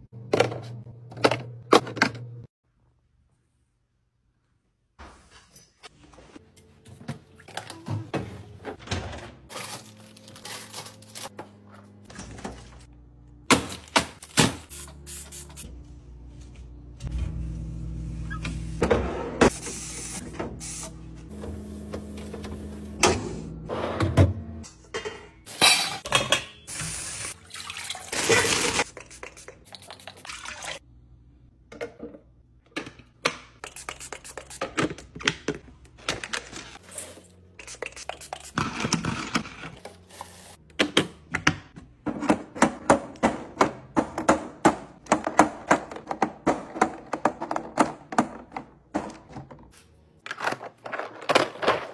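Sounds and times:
water running: 26.7 - 30.8.

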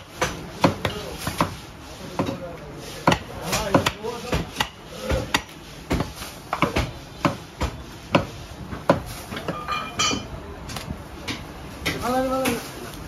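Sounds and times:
cleaver chopping on wooden block: 0.2 - 1.6, 3.0 - 9.1.

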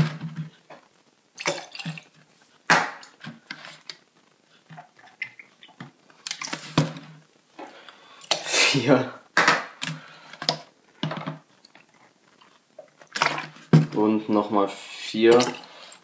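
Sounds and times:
juice splashing and dripping: 1.3 - 3.2, 4.8 - 7.0, 11.6 - 14.0.

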